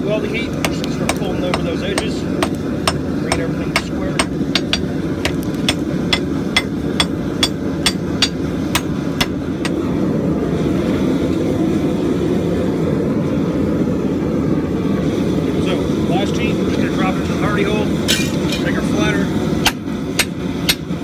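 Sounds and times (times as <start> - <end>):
steady low rumble: 0.0 - 21.0
hammer striking steel on anvil: 0.6 - 9.8, 19.6 - 20.9.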